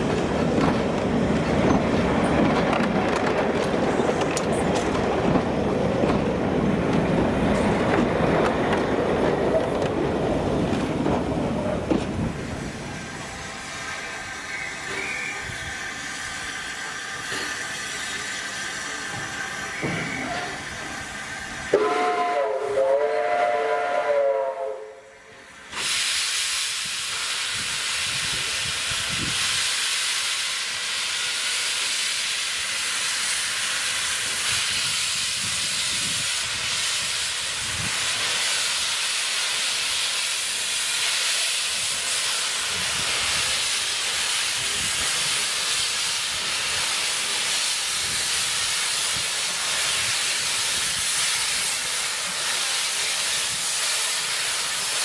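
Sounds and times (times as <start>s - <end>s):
loud steam hiss: 0.0s - 55.0s
steam locomotive whistle: 13.8s - 15.6s, 21.7s - 25.3s.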